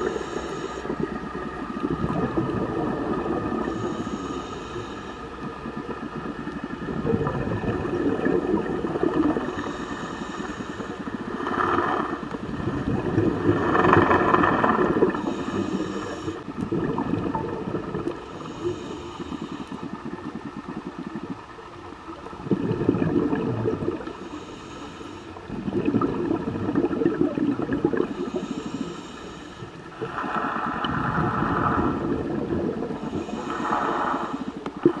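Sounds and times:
scuba regulator breathing: 0.0s - 1.4s, 3.4s - 5.8s, 9.2s - 13.0s, 13.6s - 16.6s, 18.1s - 20.2s, 24.0s - 25.5s, 28.0s - 35.0s
bubbling exhalations: 6.9s - 9.6s, 11.6s - 18.2s, 22.4s - 24.1s, 25.5s - 28.6s, 30.0s - 35.0s.

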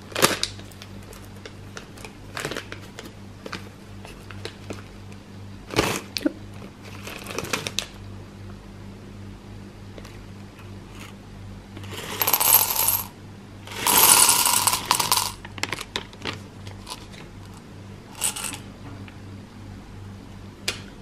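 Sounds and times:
candy clattering into glass: 11.9s - 13.1s, 13.7s - 15.4s.

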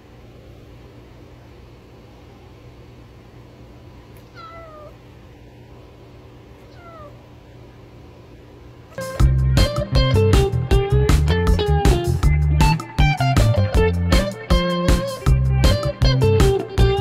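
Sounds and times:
kitten meowing: 4.2s - 5.0s, 6.6s - 7.2s.

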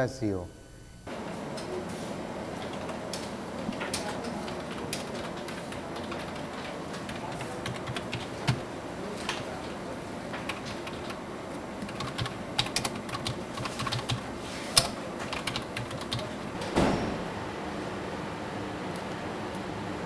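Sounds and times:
room hum: 0.0s - 20.0s
typing on computer keyboard: 2.6s - 8.6s, 10.4s - 11.2s, 11.8s - 14.2s, 14.8s - 16.5s.

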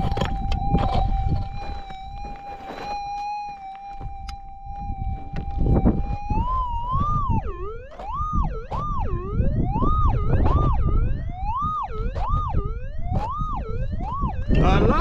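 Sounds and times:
metal detector tone warbling: 0.0s - 15.0s.

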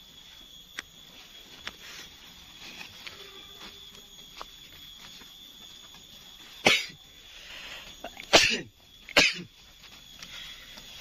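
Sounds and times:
person coughing: 6.6s - 7.0s, 8.0s - 9.5s.

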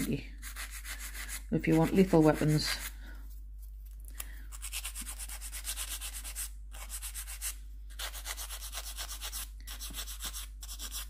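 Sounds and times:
nail file rasping on plastic nail: 4.5s - 11.0s.

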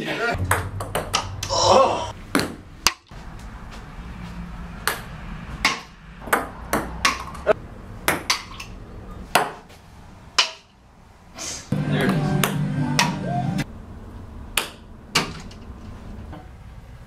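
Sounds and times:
ping-pong ball bouncing: 0.4s - 1.5s, 4.8s - 9.6s, 12.0s - 13.2s.

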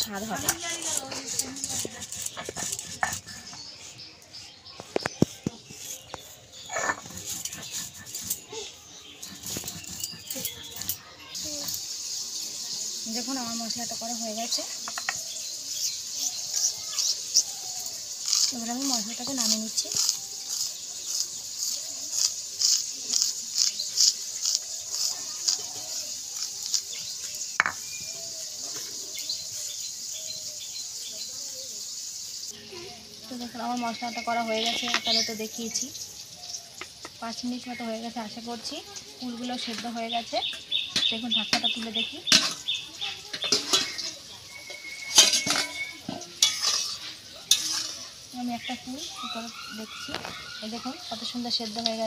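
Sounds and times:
spice powder scraped on stone: 0.0s - 31.2s, 40.8s - 50.6s
steel lid clanking on pan: 40.9s - 48.2s
metal spatula knocking in pan: 43.3s - 44.1s.

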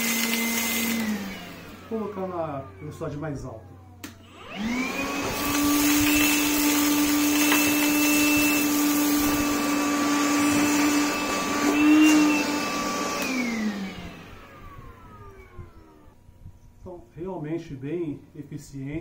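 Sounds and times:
cordless vacuum whining: 0.0s - 16.3s
vacuum sucking up sand and stones: 4.8s - 13.9s.

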